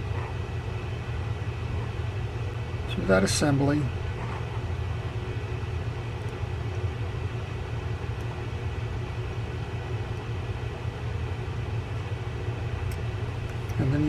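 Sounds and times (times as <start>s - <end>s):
low background hum and rumble: 0.0s - 14.0s
faint clicks of small reel parts: 12.8s - 13.8s.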